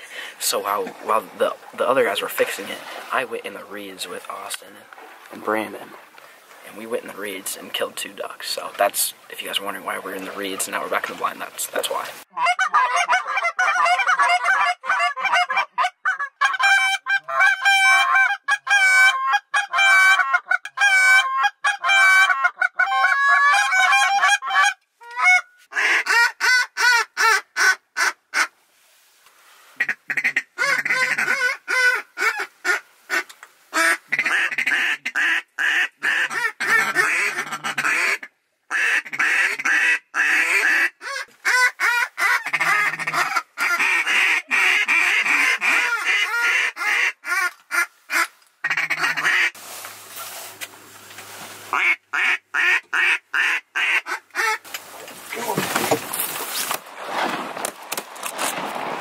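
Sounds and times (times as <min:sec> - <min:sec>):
geese honking: 0:09.4 - 0:28.5, 0:29.8 - 0:50.3, 0:51.7 - 0:54.7.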